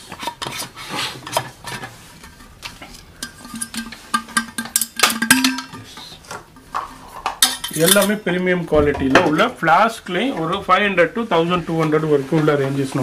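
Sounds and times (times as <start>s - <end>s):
clicks and knocks of mugs handled: 1.2s - 8.1s.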